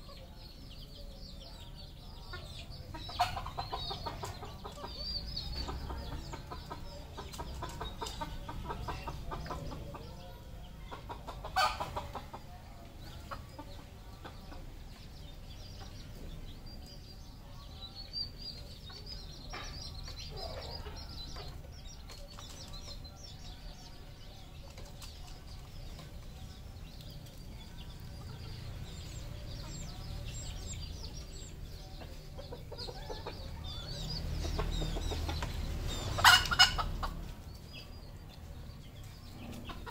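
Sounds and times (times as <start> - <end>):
junglefowl clucking and calling: 2.9 - 10.0, 10.9 - 12.4, 34.5 - 37.2.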